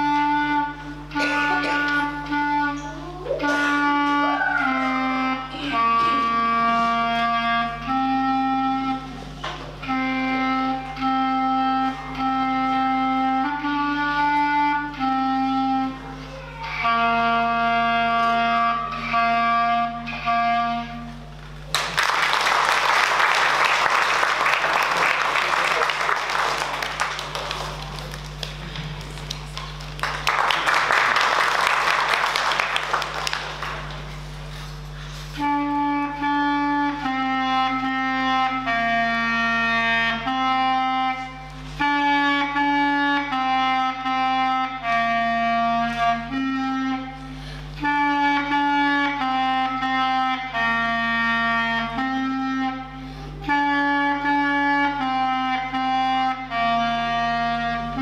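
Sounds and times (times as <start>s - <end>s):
solo clarinet melody: 0.0s - 21.6s, 30.0s - 58.0s
audience applause: 21.7s - 34.4s.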